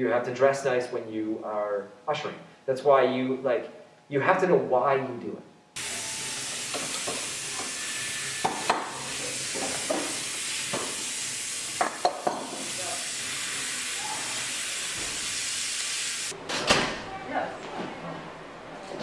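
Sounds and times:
steady hiss: 0:05.8 - 0:16.4.

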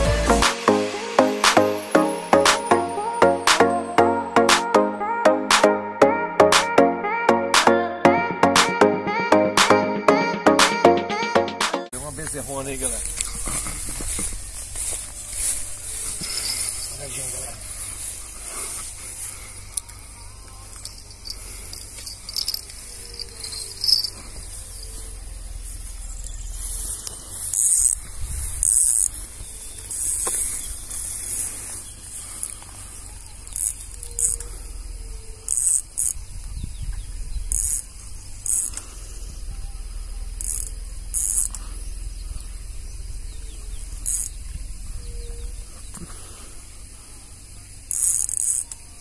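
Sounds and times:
wind rumble on microphone: 0:28.0 - 0:28.7, 0:36.2 - 0:37.5
insect buzzing: 0:33.4 - 0:36.2, 0:37.4 - 0:38.8, 0:40.2 - 0:41.7, 0:43.2 - 0:45.5, 0:47.8 - 0:48.9.

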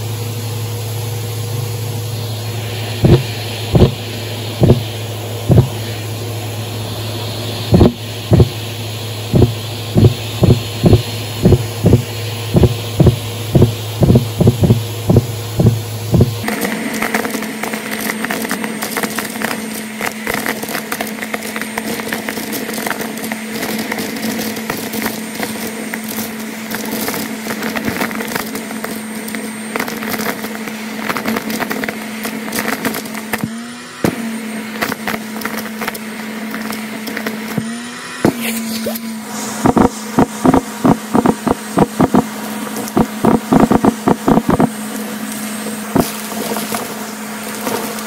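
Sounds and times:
vacuum cleaner motor hum: 0:00.0 - 0:48.0
beads rattling up hose: 0:16.4 - 0:33.5.

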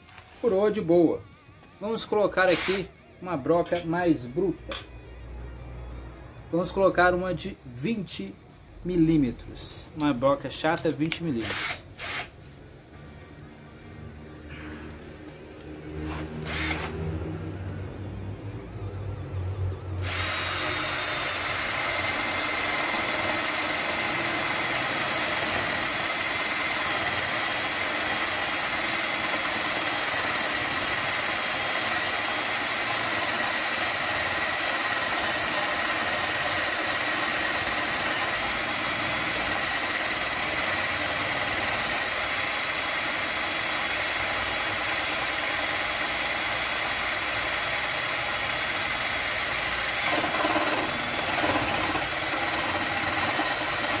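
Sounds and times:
cordless drill motor whining: 0:02.4 - 0:02.9, 0:11.4 - 0:12.3, 0:16.1 - 0:17.0, 0:20.0 - 0:54.0.

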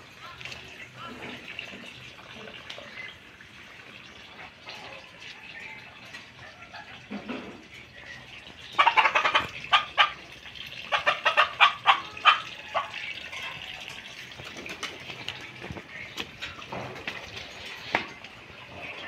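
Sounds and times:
chicken clucking: 0:08.8 - 0:10.3, 0:10.9 - 0:13.8.

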